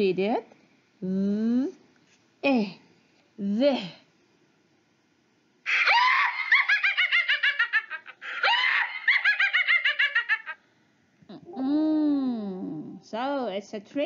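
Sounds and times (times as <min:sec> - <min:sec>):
cartoon witch cackling: 0:05.7 - 0:10.6.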